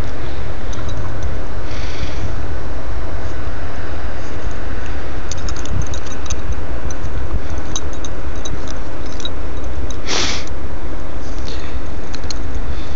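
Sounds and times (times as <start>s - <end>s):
wind buffeting microphone: 4.3s - 10.1s
short hiss: 10.0s - 10.5s.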